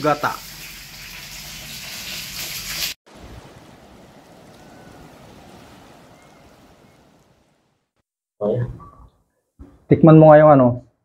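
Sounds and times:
rush of water: 0.0s - 8.0s.

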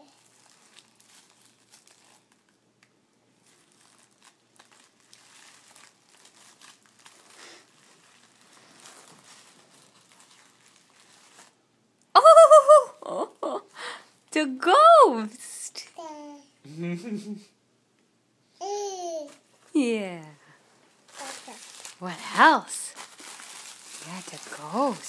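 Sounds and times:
tissue paper crinkling: 0.0s - 2.6s, 3.4s - 11.6s, 21.0s - 25.0s.

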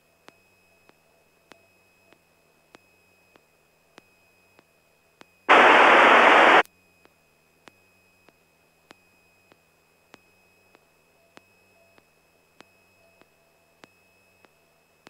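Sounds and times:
loud radio static burst: 5.5s - 6.6s.

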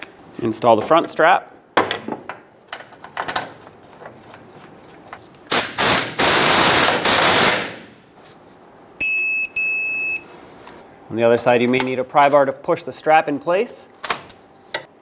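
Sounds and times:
torque wrench electronic beep: 9.0s - 10.3s.

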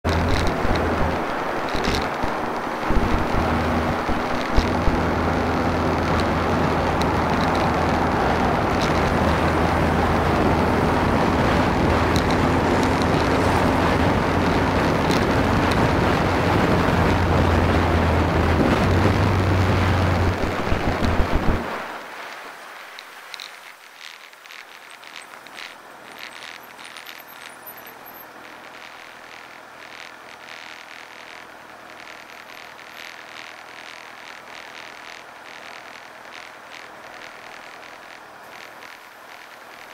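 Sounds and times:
motorcycle engine running: 0.0s - 22.0s, 24.7s - 39.9s
wind noise on microphone: 0.0s - 27.5s
faint clicks: 0.1s - 5.2s, 5.9s - 10.5s, 11.4s - 17.1s, 20.2s - 39.9s.

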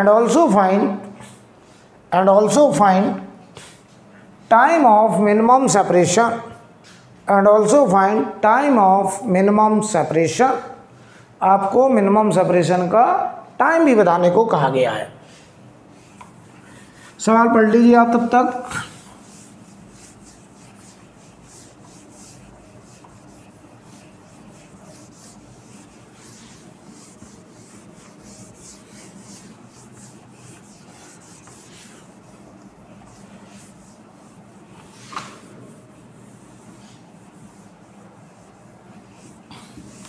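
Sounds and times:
eraser rubbing on whiteboard: 18.4s - 40.0s.

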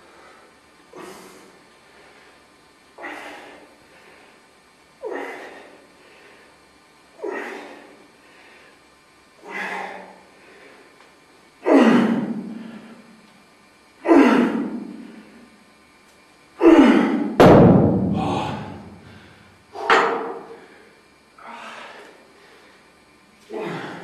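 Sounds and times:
man breathing heavily: 0.0s - 13.3s, 14.0s - 15.6s, 18.1s - 24.0s
thud: 17.4s - 18.9s.

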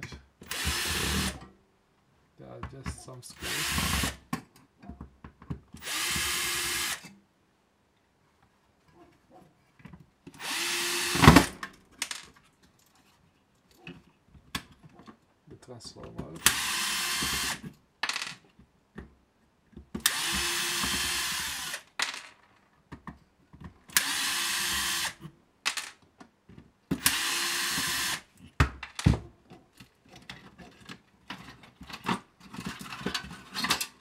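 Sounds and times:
electric screwdriver running: 0.5s - 1.4s, 5.8s - 7.0s, 10.4s - 11.5s, 16.4s - 17.6s, 20.0s - 21.9s, 23.9s - 25.2s, 27.0s - 28.2s.

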